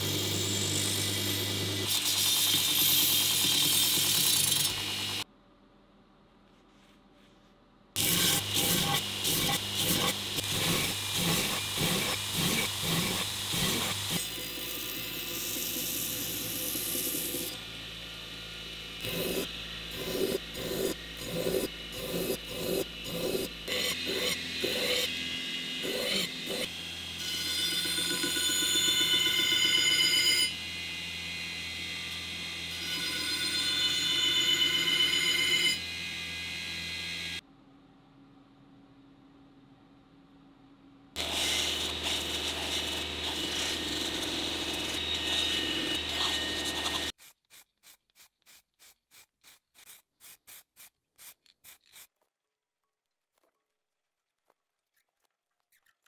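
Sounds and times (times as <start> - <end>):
belt grinder grinding metal: 0.0 - 5.2, 8.0 - 17.6, 19.0 - 30.7, 41.2 - 52.2.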